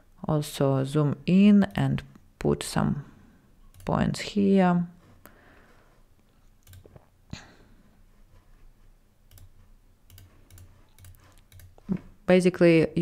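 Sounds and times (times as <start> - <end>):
faint computer mouse clicks: 9.3 - 11.9.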